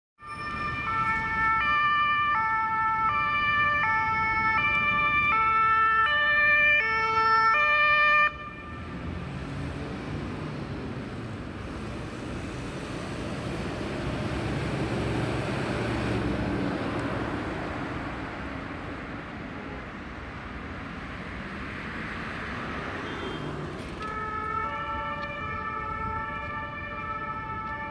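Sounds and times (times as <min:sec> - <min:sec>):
two-tone siren: 0:00.2 - 0:08.9, 0:24.0 - 0:27.9
passing road traffic: 0:00.2 - 0:27.9.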